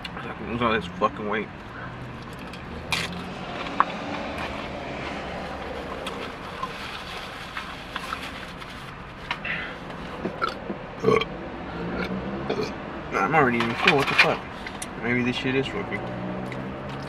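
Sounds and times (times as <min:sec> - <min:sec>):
car engine hum inside cabin: 0:00.0 - 0:17.0
chewing: 0:01.6 - 0:08.2.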